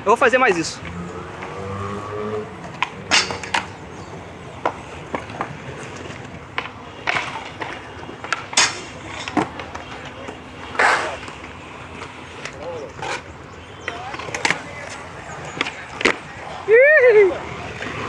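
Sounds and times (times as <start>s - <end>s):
skateboard wheels rolling: 0.7s - 18.0s
skateboard scraping metal rail: 2.7s - 3.7s, 10.6s - 11.4s, 12.8s - 13.4s.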